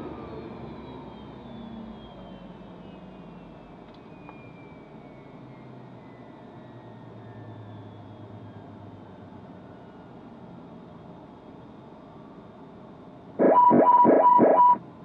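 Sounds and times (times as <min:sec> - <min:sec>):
jet engines winding down: 0:12.0 - 0:15.0.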